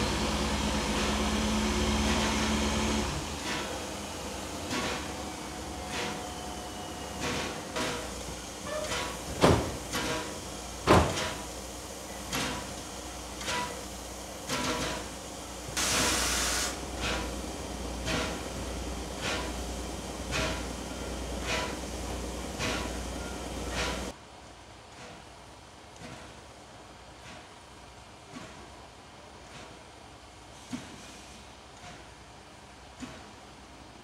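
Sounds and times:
steam hiss: 0.0 - 24.2, 30.5 - 32.1
steam locomotive beats: 0.0 - 24.2, 26.0 - 33.5.

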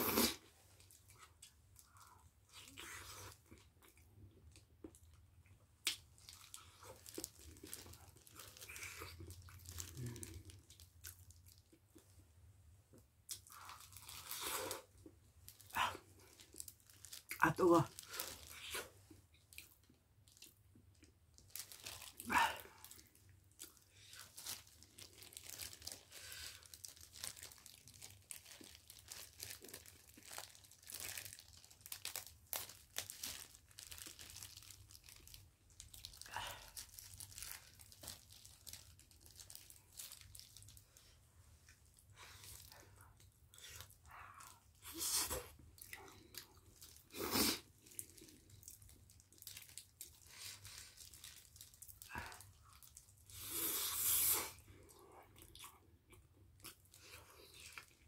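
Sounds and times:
plastic gloves crinkling: 5.9 - 12.2, 13.4 - 53.6.

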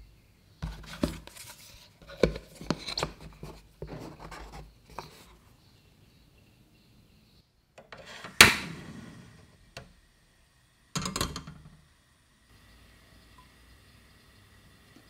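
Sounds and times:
gas stove igniter clicking: 7.8 - 9.2
gas burner hiss: 7.8 - 15.0.

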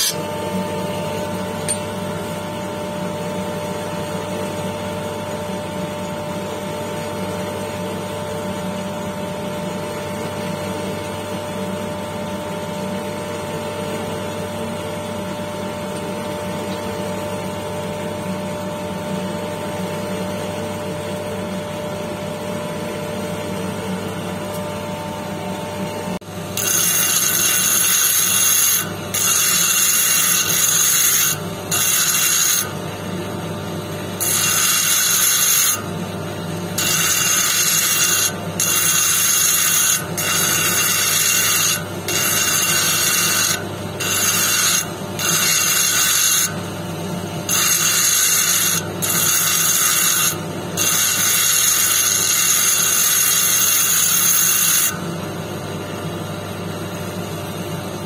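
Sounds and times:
stone rubbing on polishing wheel: 0.0 - 0.2, 26.6 - 32.7, 34.2 - 35.8, 36.8 - 46.5, 47.5 - 55.0.

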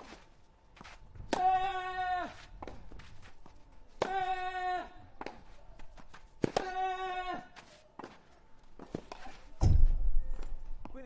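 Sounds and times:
racket hitting tennis ball: 6.4 - 6.9.

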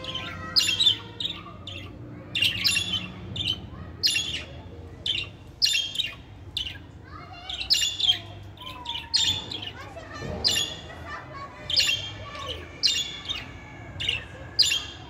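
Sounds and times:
budgerigars chirping: 0.0 - 6.9, 11.7 - 15.0.

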